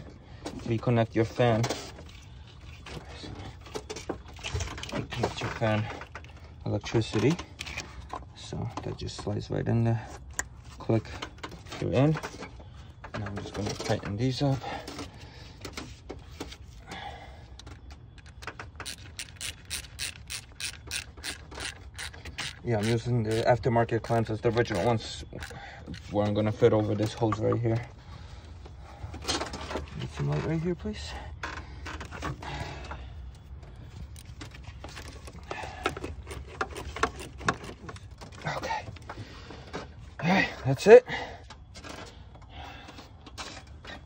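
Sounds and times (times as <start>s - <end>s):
hand tool clicks and scrapes: 17.6s - 27.5s, 34.0s - 38.6s
ratchet wrench clicking: 18.8s - 25.6s.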